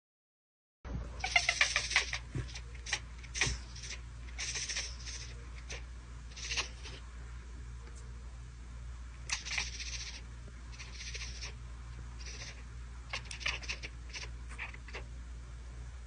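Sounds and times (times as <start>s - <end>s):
steady low hum: 0.9s - 16.0s
cat hissing: 1.2s - 7.0s, 9.2s - 11.6s, 12.2s - 15.1s.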